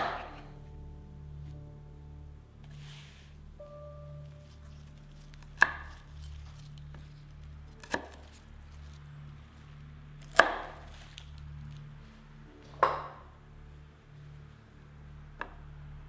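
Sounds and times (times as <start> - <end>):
celery stalks cracking: 4.2 - 12.0.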